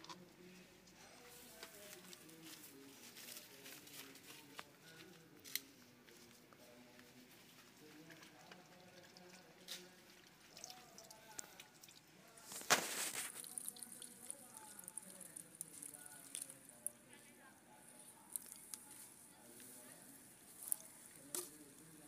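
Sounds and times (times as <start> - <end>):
water pouring: 10.2 - 16.8.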